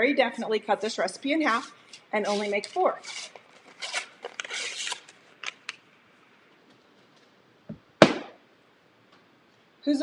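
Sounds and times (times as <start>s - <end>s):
paper wrapper peeling: 2.3s - 5.7s.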